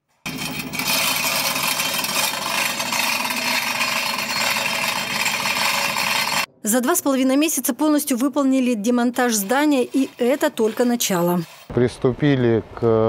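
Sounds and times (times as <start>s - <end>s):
electric hoist clattering: 0.3s - 6.5s.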